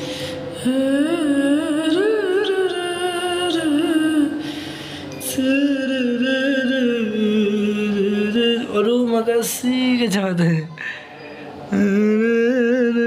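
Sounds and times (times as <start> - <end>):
singer breath: 0.0 - 0.6, 4.4 - 5.2, 10.7 - 11.7.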